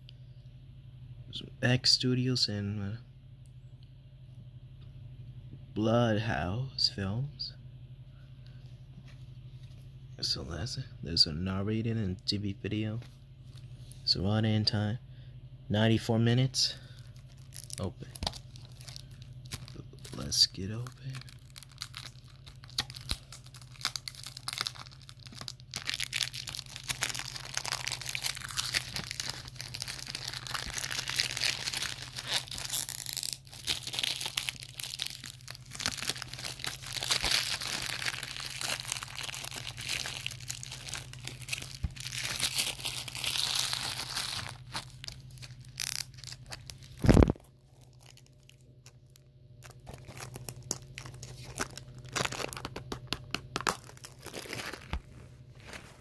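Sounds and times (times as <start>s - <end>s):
plastic wrap crinkling: 16.7s - 56.0s.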